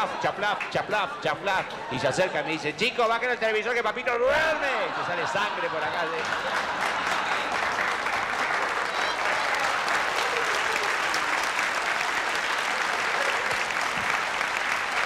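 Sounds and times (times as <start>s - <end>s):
audience applauding: 5.5s - 15.0s.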